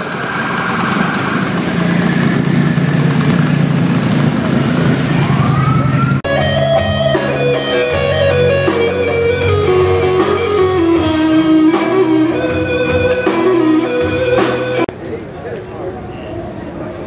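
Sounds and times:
steady drum beat: 6.2s - 14.9s
electric guitar: 6.3s - 14.9s.

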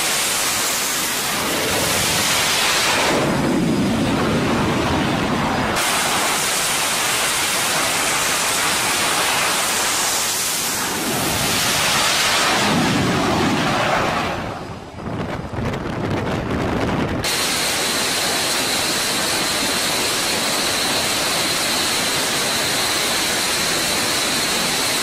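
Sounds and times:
fighter jets roaring: 0.1s - 15.2s.

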